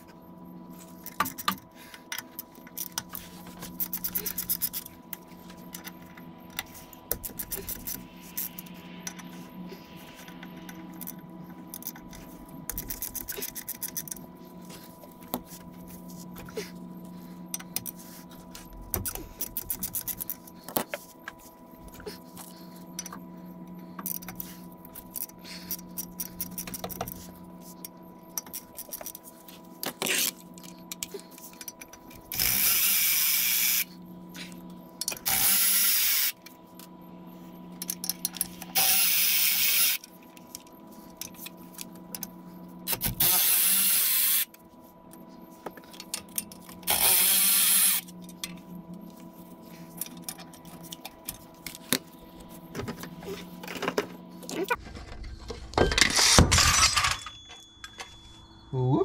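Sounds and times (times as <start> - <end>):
power tool bursts: 43.0 - 44.5.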